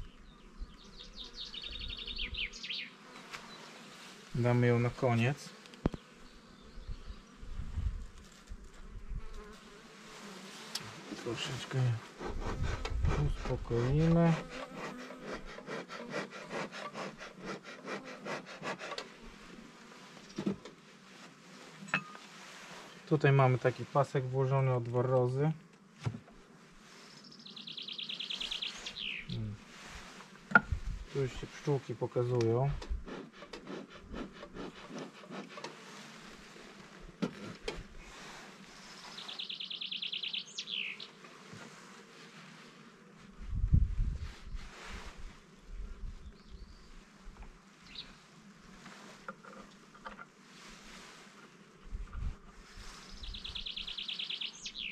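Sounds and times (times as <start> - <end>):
honeybees buzzing: 0.0 - 32.1, 32.9 - 54.9
wooden hive frames scraping: 8.1 - 26.5, 27.1 - 39.6
bellows smoker puffing: 32.9 - 36.2.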